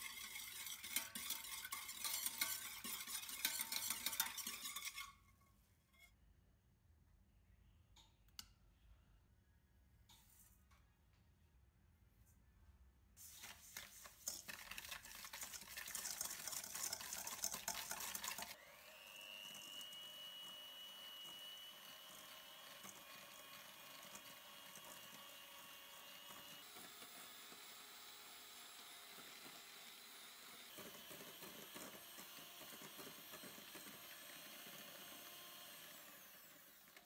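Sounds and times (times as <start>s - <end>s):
rustling scraping noise: 13.2s - 18.5s
electric hand mixer whining: 14.5s - 37.0s.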